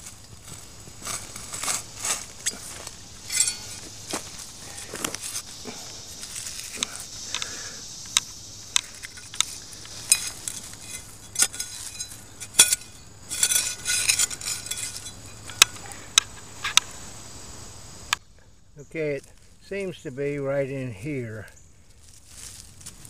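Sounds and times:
shovel scraping through soil: 0.0 - 7.0, 8.8 - 15.6
sharp metallic clinks: 2.4 - 4.9, 8.1 - 16.0.

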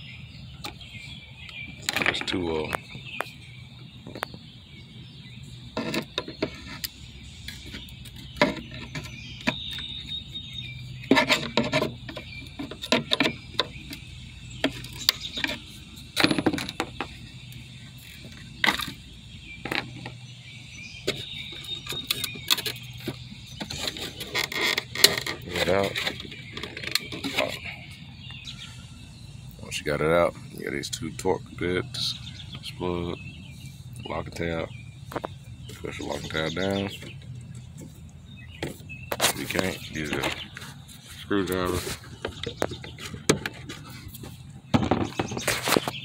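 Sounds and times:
low steady hum: 0.0 - 46.0
plastic clicks and scrapes: 5.8 - 10.2, 11.0 - 14.0, 21.0 - 27.6.

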